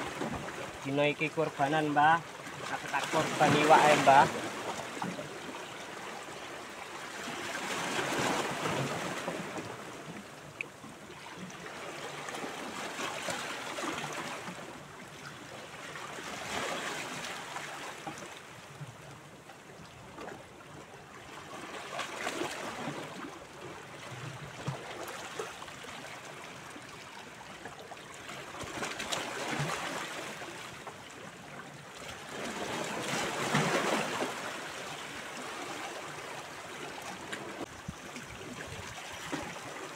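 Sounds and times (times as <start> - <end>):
waves washing against rocks: 0.0 - 4.6.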